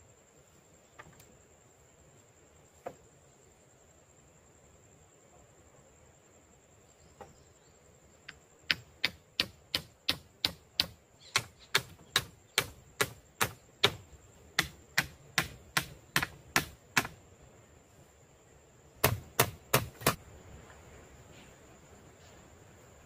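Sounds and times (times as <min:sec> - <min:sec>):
chopping strikes on wood: 0:08.7 - 0:14.0, 0:14.6 - 0:17.2, 0:19.0 - 0:20.2.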